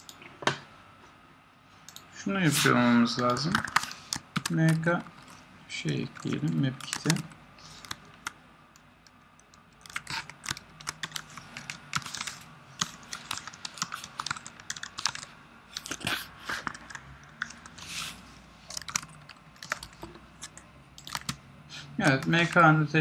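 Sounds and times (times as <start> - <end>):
computer keyboard typing: 3.2 - 17.8, 18.7 - 21.4, 22.0 - 22.7.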